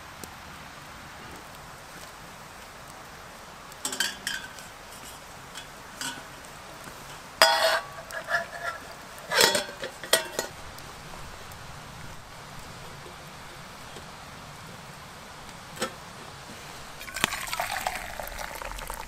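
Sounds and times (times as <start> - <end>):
metal pots clinking: 3.8 - 10.6, 17.0 - 19.0.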